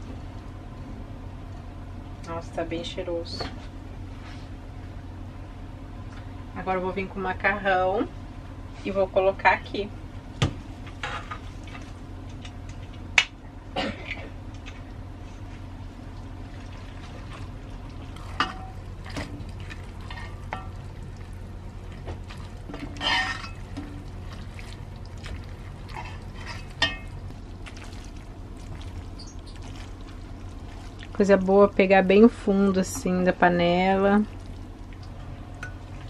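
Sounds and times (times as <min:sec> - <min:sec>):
steady low hum: 0:00.0 - 0:36.0
utensil knocking and scraping pot: 0:22.7 - 0:24.0.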